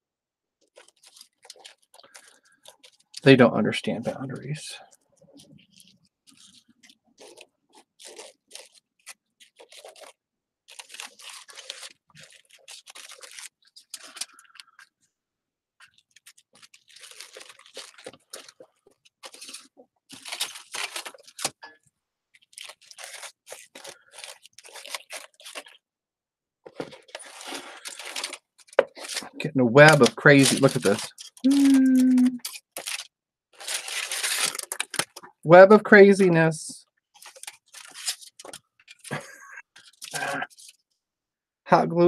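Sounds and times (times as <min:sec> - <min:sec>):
paper rustling and crunching: 0:00.7 - 0:03.2, 0:05.6 - 0:14.8, 0:15.8 - 0:21.6, 0:22.4 - 0:25.8, 0:26.7 - 0:35.3, 0:37.2 - 0:40.8.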